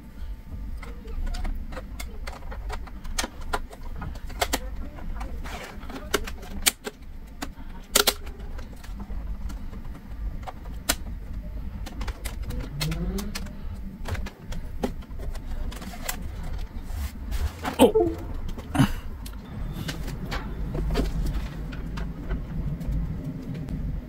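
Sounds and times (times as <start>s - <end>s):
steady low rumble: 13.5s - 24.0s.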